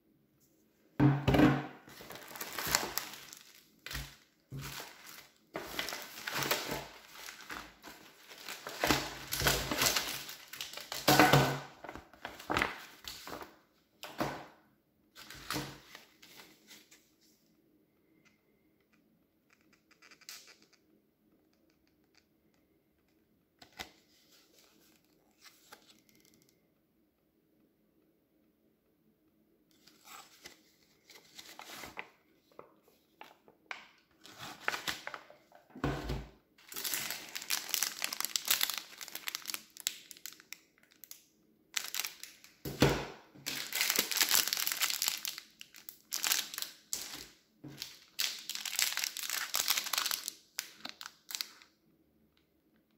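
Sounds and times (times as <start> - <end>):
plastic wrappers crinkling: 1.9 - 13.5, 34.1 - 35.7, 36.6 - 42.6, 43.4 - 51.7.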